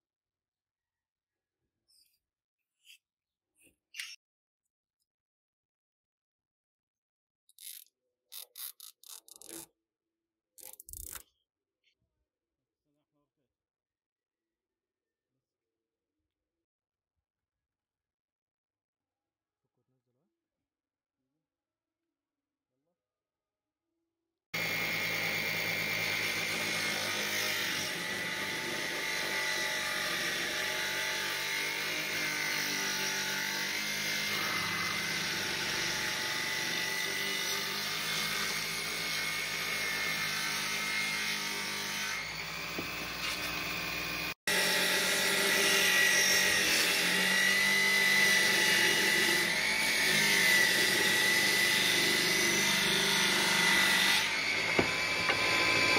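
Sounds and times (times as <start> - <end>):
circular saw whining: 24.6 - 55.9
saw blade ripping plywood: 25.7 - 55.9.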